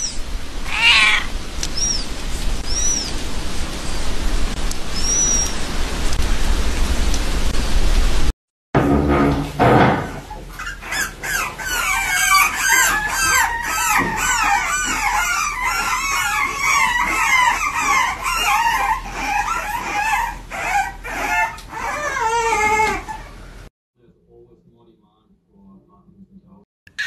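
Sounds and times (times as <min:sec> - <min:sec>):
puppies yipping and whining: 0:00.0 - 0:03.2, 0:05.0 - 0:05.6, 0:10.2 - 0:23.7.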